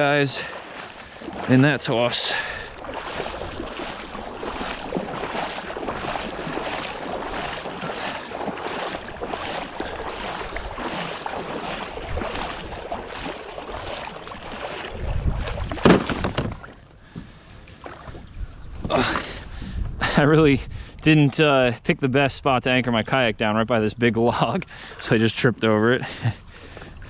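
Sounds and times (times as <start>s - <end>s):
water splashing and dripping: 0.0s - 16.8s
net knocking on plastic kayak: 15.4s - 16.7s.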